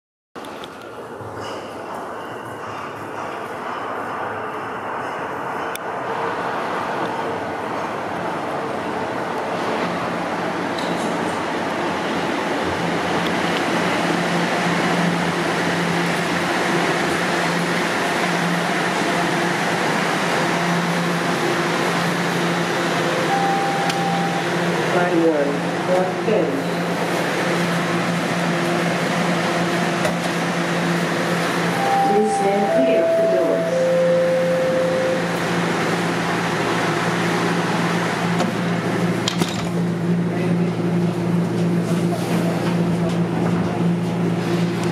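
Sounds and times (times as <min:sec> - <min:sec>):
subway train equipment humming: 0:00.4 - 0:44.9
short beep: 0:23.3 - 0:24.5, 0:31.8 - 0:35.3
tone: 0:23.3 - 0:24.6, 0:31.8 - 0:35.5.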